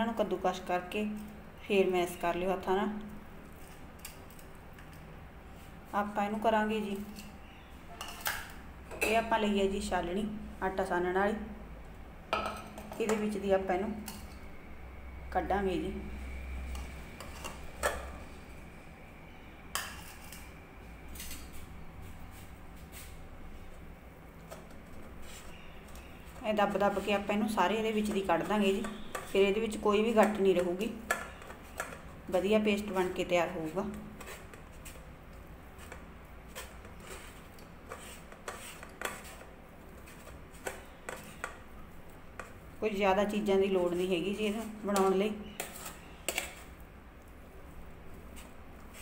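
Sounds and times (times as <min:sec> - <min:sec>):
spoon scraping through metal sieve: 0:19.8 - 0:20.5, 0:35.8 - 0:41.5, 0:43.6 - 0:46.8.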